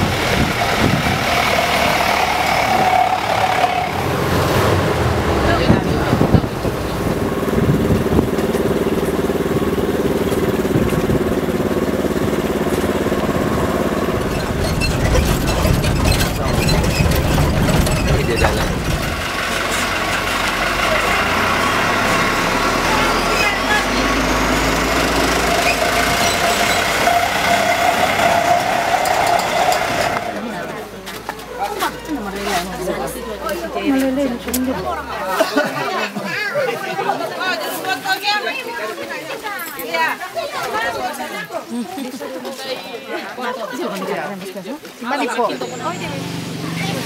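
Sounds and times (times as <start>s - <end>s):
vehicle engine humming: 0.0s - 35.3s, 45.4s - 47.0s.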